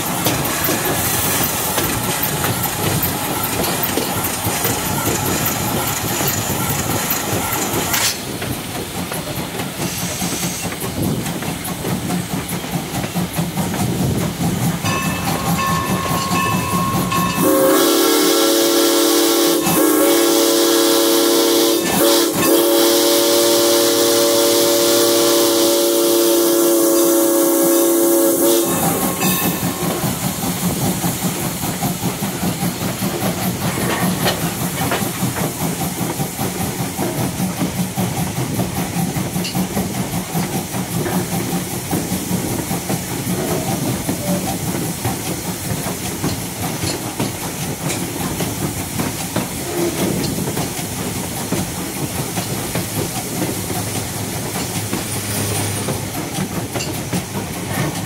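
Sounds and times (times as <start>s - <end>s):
train rolling along track: 0.0s - 58.0s
steam locomotive chime whistle: 14.8s - 30.6s.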